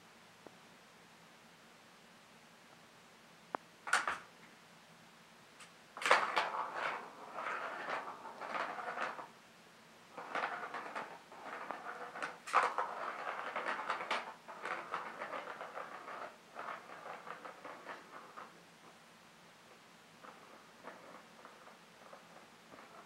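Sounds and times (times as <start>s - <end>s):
ball rattling in plastic track: 3.9s - 4.3s, 6.0s - 9.3s, 10.2s - 18.6s, 20.2s - 23.0s.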